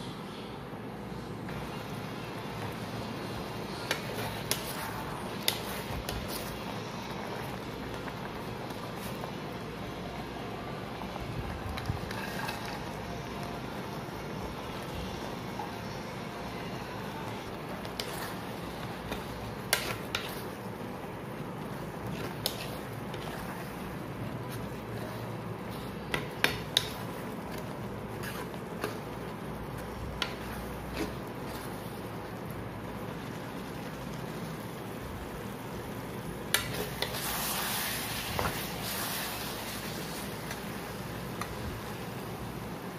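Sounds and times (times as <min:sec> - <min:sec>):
sauce simmering: 0:01.5 - 0:42.9
spoon scraping a pan: 0:17.8 - 0:20.6, 0:22.0 - 0:23.8, 0:24.5 - 0:29.1.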